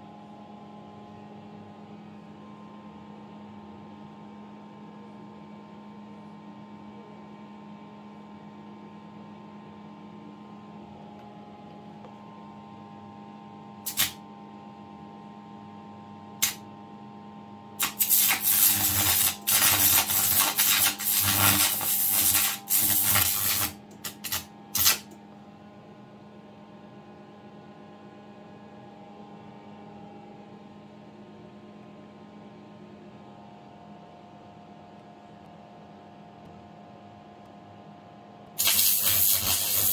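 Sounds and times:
electrical hum: 9.6 - 27.7, 38.5 - 39.9
loud rough arc noise: 13.9 - 14.2, 17.8 - 25.1, 38.6 - 39.9
short electrical crackles: 13.9 - 14.2, 17.8 - 25.1, 38.6 - 39.9.

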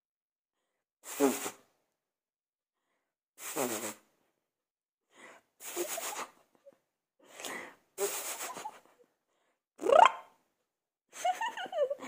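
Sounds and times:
breathy huffs and puffs: 5.0 - 9.6.

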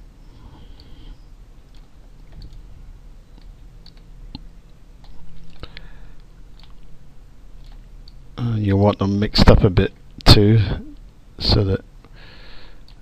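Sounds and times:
low steady hum: 0.0 - 13.0
computer mouse clicking: 1.7 - 2.6, 3.3 - 5.6, 6.2 - 6.9, 7.6 - 8.2.

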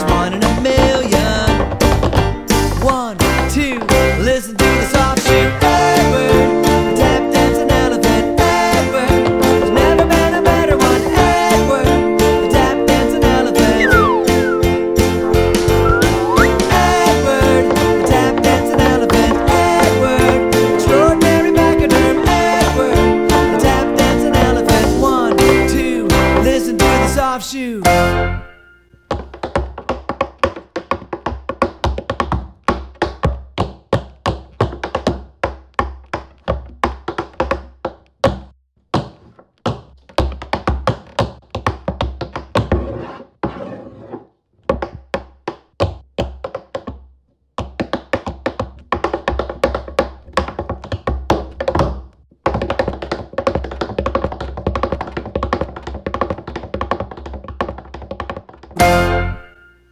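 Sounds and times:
tap shoes on hard floor: 0.0 - 5.6, 8.7 - 26.7, 29.1 - 43.0, 44.6 - 59.0.

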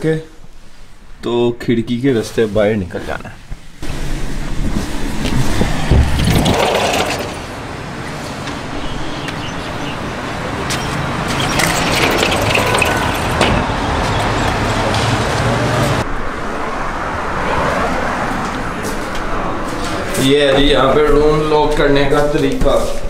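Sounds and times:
street traffic noise: 2.1 - 23.0
vehicle engine running: 3.8 - 16.1.

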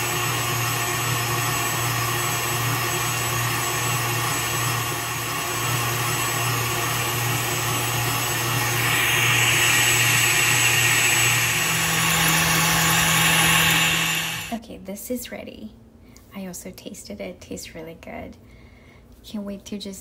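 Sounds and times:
stand mixer whisking cream: 0.0 - 14.6.

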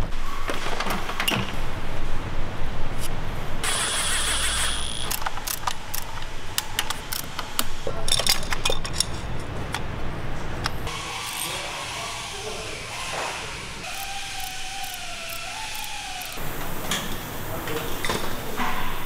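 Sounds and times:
hand tools and parts clicking: 3.6 - 9.8, 13.8 - 16.5.

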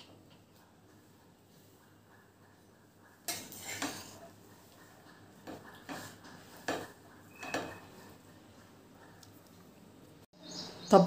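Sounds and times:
metal spoon scraping pot: 3.3 - 4.2.

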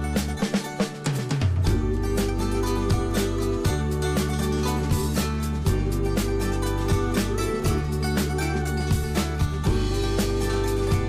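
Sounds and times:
music with drum beat and bass: 0.0 - 11.0.

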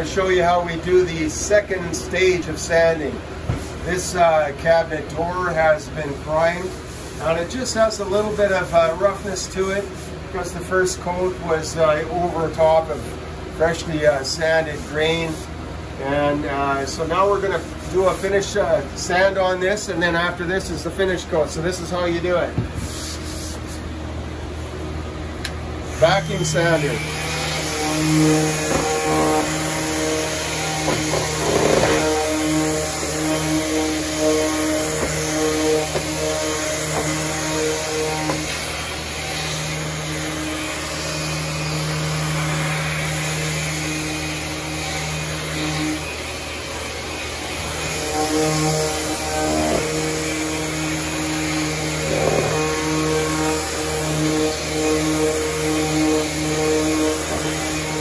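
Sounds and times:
orbital sander motor hum: 25.8 - 58.0.

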